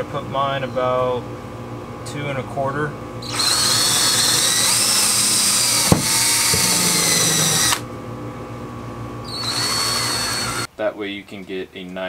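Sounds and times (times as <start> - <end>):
cordless drill boring into wood: 3.2 - 7.9, 9.3 - 10.7.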